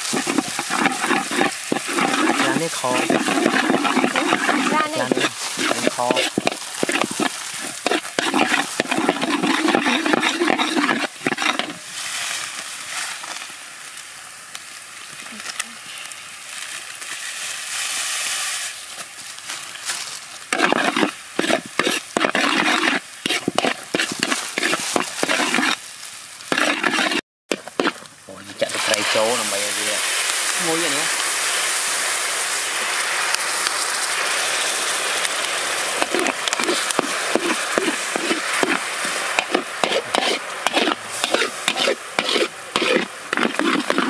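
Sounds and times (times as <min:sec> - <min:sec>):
metal spatula scraping wok: 0:00.0 - 0:13.1, 0:20.5 - 0:25.8, 0:26.5 - 0:29.9, 0:36.0 - 0:44.0
garlic sizzling in oil: 0:00.0 - 0:44.0.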